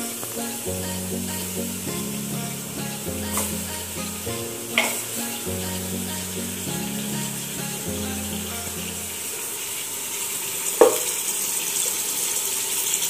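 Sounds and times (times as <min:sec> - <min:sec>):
background music: 0:00.0 - 0:09.4
meat sizzling in hot oil: 0:09.1 - 0:13.0.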